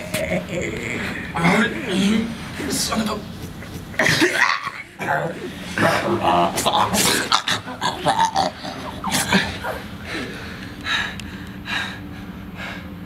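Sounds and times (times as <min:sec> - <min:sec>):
man breathing heavily: 0:08.7 - 0:13.0.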